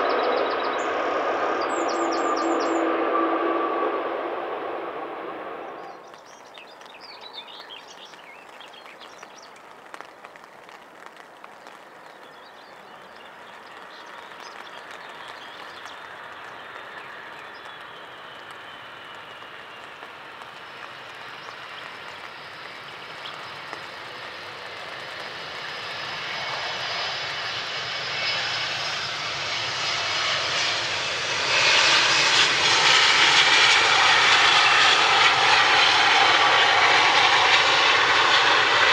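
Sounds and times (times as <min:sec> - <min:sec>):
falling engine whine: 0:00.0 - 0:06.1, 0:15.2 - 0:38.9
jet airliner engine noise: 0:00.0 - 0:38.9.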